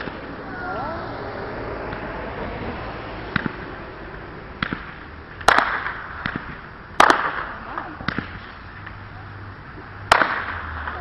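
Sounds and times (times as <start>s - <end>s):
firework bang: 4.6s - 8.6s, 10.1s - 11.0s
firework pops: 4.6s - 9.0s, 9.8s - 11.0s.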